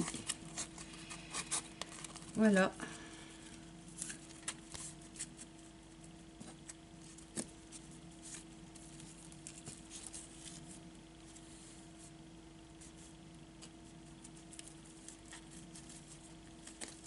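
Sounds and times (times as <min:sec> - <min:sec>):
paper and ribbon rustling: 0:00.0 - 0:02.6, 0:07.0 - 0:11.8
steady low hum: 0:00.0 - 0:17.0.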